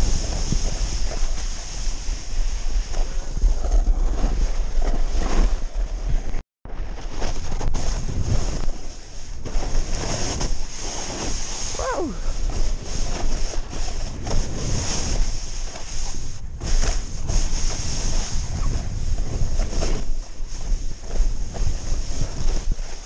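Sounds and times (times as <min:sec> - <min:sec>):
snowboard scraping through snow: 0:00.0 - 0:23.0
wind rushing over microphone: 0:00.0 - 0:23.0.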